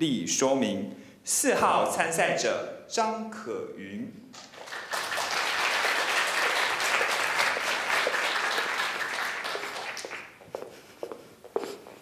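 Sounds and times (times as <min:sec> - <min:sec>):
audience applause: 0:04.4 - 0:10.4
high heels on wooden stage: 0:05.8 - 0:12.0.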